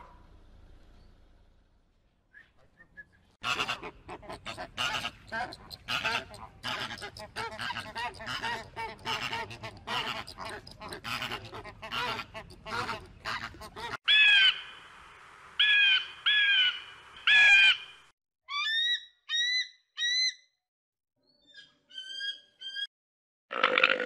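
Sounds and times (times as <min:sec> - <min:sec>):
flamingos honking and chattering: 0:03.4 - 0:14.5.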